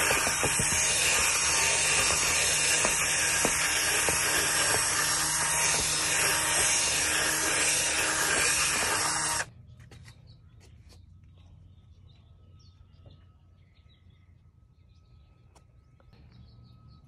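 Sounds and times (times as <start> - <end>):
scrub brush hissing on mat: 0.0 - 9.4
cordless drill motor hum: 0.0 - 9.5.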